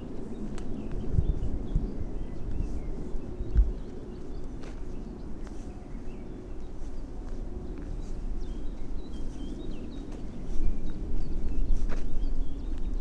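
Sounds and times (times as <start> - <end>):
footsteps on forest path: 0.0 - 13.0
small birds chirping: 0.0 - 13.0.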